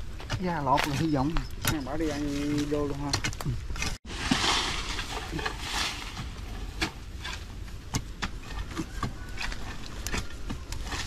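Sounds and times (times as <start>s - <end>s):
steady hiss: 4.1s - 6.8s.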